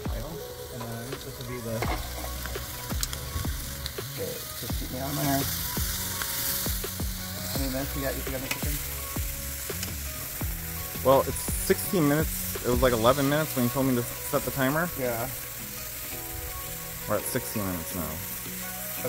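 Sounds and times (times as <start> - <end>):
chicken sizzling on charcoal grill: 0.0 - 19.0
metal tongs scraping grill grate: 0.8 - 4.0, 7.5 - 8.9.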